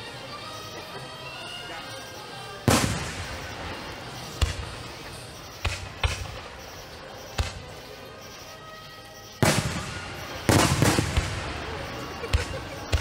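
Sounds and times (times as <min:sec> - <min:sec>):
faint music: 0:00.0 - 0:13.0
fireworks booming: 0:02.7 - 0:07.9, 0:09.4 - 0:13.0.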